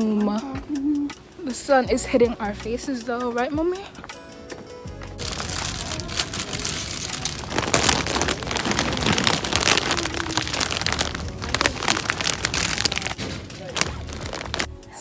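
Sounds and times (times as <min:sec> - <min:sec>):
plastic packaging crinkling: 0:05.2 - 0:14.7.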